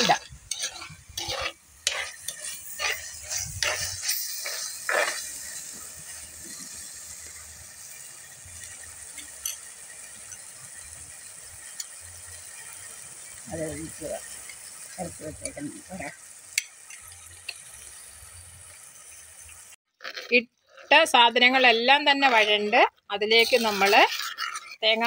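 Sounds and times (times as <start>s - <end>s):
spoon scraping against bowl: 0.0s - 6.9s, 20.0s - 25.0s
vegetables sizzling in oil: 0.0s - 25.0s.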